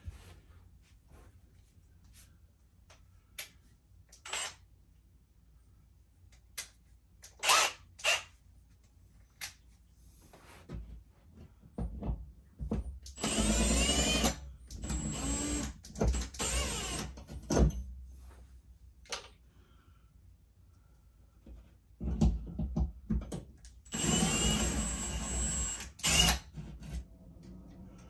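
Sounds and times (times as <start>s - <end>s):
cordless drill driving a screw: 4.2s - 4.6s, 7.4s - 8.2s, 13.2s - 17.1s, 23.9s - 26.5s.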